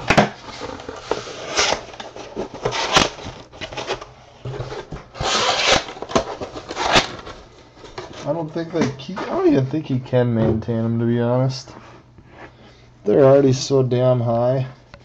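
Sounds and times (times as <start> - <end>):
cardboard scraping and rustling: 0.1 - 9.5.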